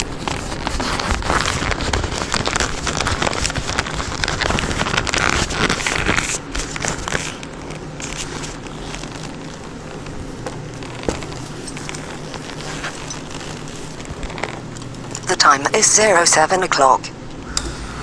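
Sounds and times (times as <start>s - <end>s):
motorcycle engine crackling: 0.0s - 15.3s.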